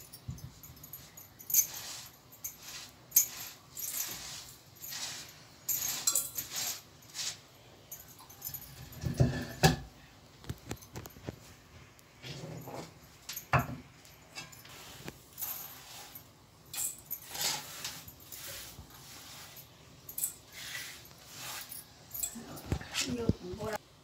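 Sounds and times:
hand quern grinding grain: 0.8s - 8.8s, 14.6s - 23.3s.

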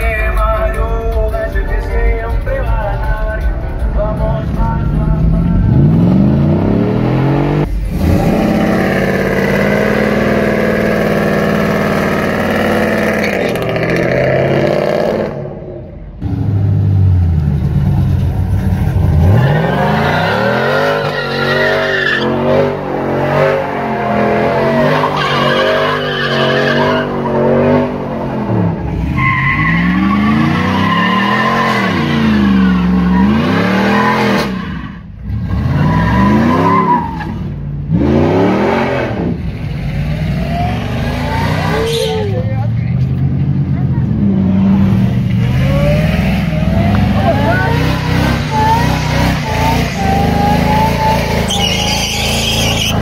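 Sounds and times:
truck engines revving: 2.2s - 53.0s
tires squealing: 18.5s - 43.1s, 44.6s - 53.0s.

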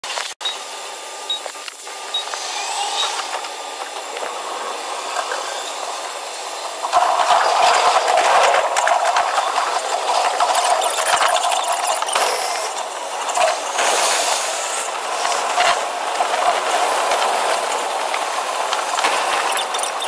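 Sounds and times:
train running rushing noise: 1.8s - 20.0s
oncoming train passing: 1.9s - 8.9s.

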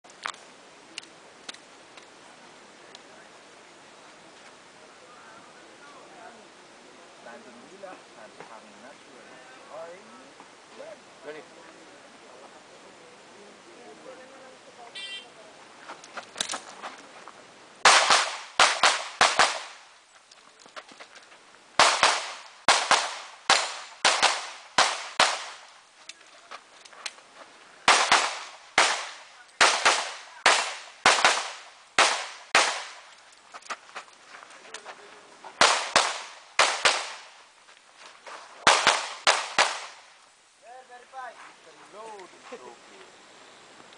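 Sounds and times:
pistol shots: 17.8s - 19.8s, 21.8s - 25.6s, 27.9s - 33.0s, 35.6s - 37.3s, 38.6s - 40.0s.

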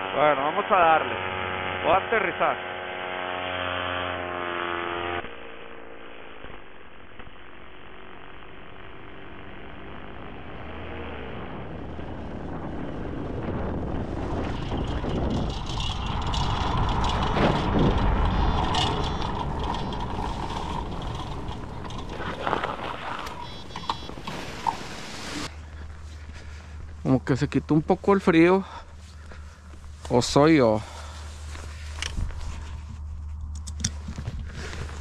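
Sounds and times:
engine running: 0.0s - 35.0s
wheels rolling over gravel: 10.3s - 27.5s, 33.8s - 35.0s
wind rush: 11.6s - 25.6s.

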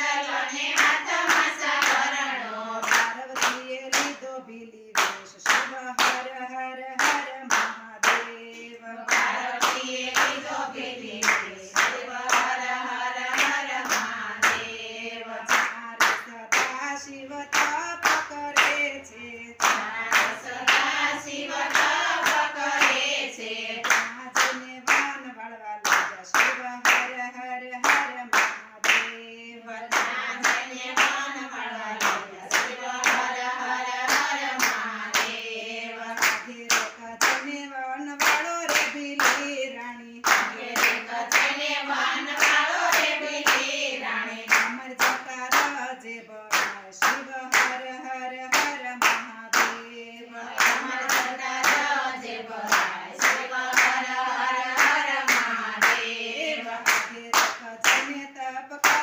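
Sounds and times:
women singing together: 0.0s - 59.0s
hands clapping: 0.6s - 2.2s, 2.8s - 4.2s, 5.0s - 6.4s, 7.0s - 14.7s, 15.5s - 16.9s, 17.5s - 18.9s, 19.6s - 23.1s, 23.8s - 25.2s, 25.8s - 27.2s, 27.8s - 29.3s, 29.9s - 31.3s, 32.0s - 35.4s, 36.1s - 37.6s, 38.2s - 39.6s, 40.2s - 43.8s, 44.5s - 45.8s, 46.5s - 47.9s, 48.5s - 49.9s, 50.5s - 58.2s, 58.8s - 59.0s.

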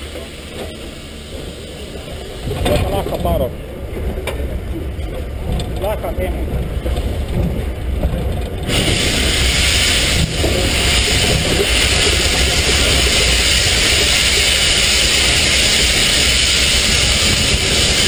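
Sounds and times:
steam hissing: 0.0s - 3.5s, 8.6s - 18.0s
low rumble: 0.0s - 18.0s.

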